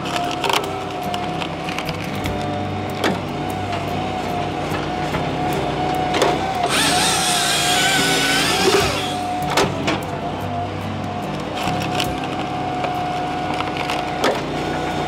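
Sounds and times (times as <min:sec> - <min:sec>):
firewood processor engine running: 0:00.0 - 0:15.0
chainsaw cutting log: 0:06.0 - 0:09.8.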